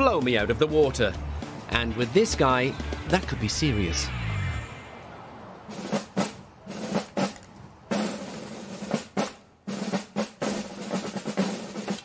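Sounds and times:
drum-driven background music: 0.0 - 4.6.

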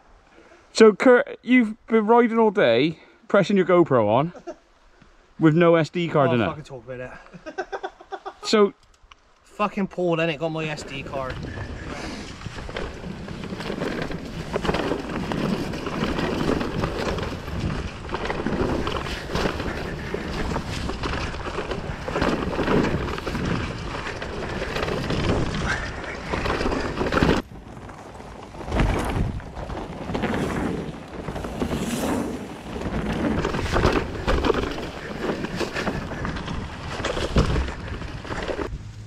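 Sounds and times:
bike rumbling and rattling: 10.6 - 39.0
wind buffeting microphone: 10.7 - 27.8.

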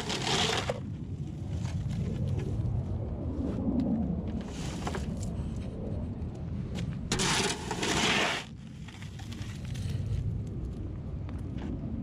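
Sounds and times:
loud scraping rush: 0.0 - 0.8, 7.1 - 8.5
wheelbarrow rolling rumble: 0.0 - 0.8, 7.1 - 10.0.

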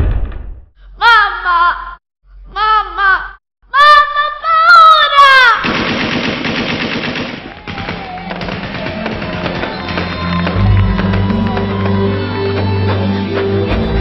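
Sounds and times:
background music: 7.6 - 14.0.

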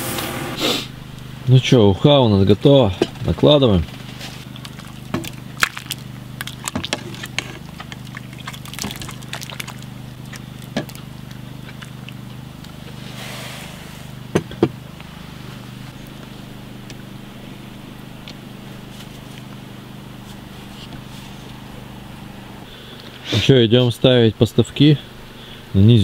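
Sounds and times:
steady low hum: 0.0 - 26.0
soup splashing: 4.4 - 13.0.

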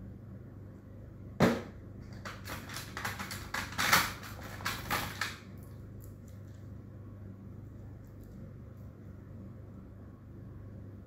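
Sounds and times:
stationery knocking on tin case: 1.4 - 5.3
pens clicking and rattling: 2.1 - 5.4.

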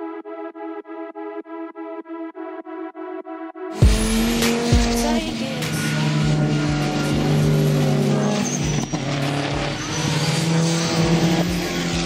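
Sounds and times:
racing car engines passing: 3.8 - 12.0.

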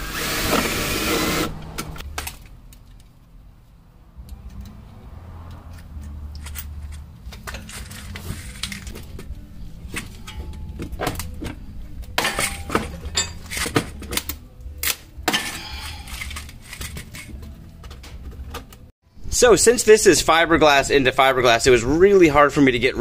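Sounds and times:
metal tools clinking: 5.7 - 9.1, 12.2 - 14.0, 15.3 - 17.9.

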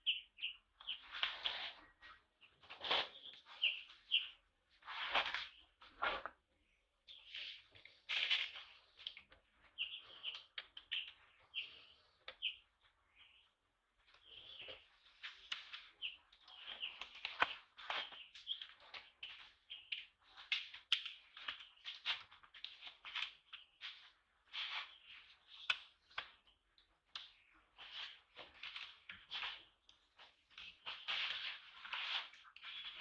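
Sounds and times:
high-pitched chirping calls: 0.0 - 1.1, 9.8 - 13.5.

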